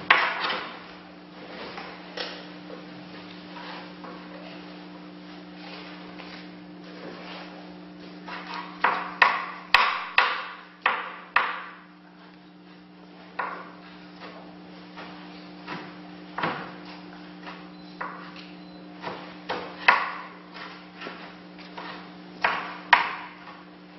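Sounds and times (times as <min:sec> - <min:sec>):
steady low hum: 0:00.0 - 0:23.9
knife chopping on wooden board: 0:08.2 - 0:11.8, 0:13.4 - 0:14.4, 0:15.0 - 0:23.6.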